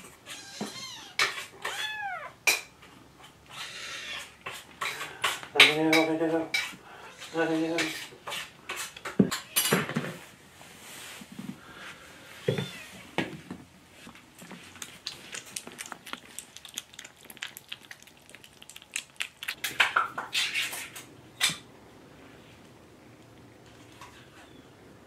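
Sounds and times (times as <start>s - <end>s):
kitten meow: 0.2s - 2.4s
kittens eating from metal bowl: 14.2s - 21.5s.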